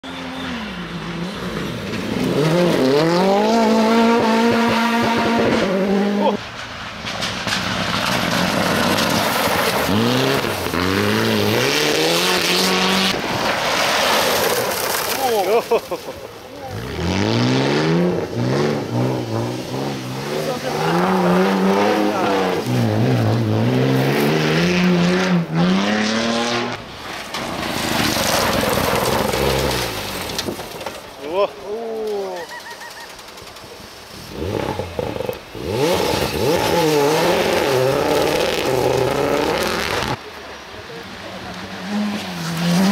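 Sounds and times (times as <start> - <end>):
rally car engine revving: 0.0 - 6.6, 7.2 - 15.2, 16.5 - 30.9, 34.1 - 40.2, 41.4 - 42.9
tyres on gravel: 6.1 - 17.7, 18.4 - 24.9, 26.8 - 42.9.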